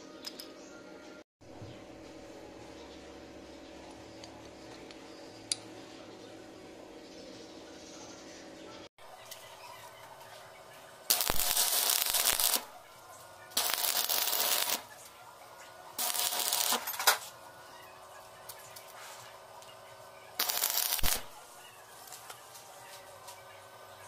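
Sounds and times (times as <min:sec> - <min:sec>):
welding arc crackling: 0:11.1 - 0:12.8, 0:13.5 - 0:15.2, 0:15.9 - 0:17.4, 0:20.3 - 0:22.3.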